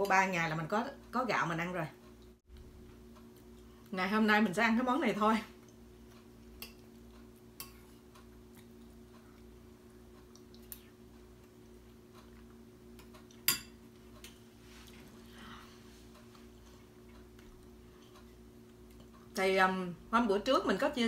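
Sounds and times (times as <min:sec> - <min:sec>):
steady low hum: 0:00.0 - 0:21.0
metal spoon clinking against bowl: 0:13.4 - 0:13.8.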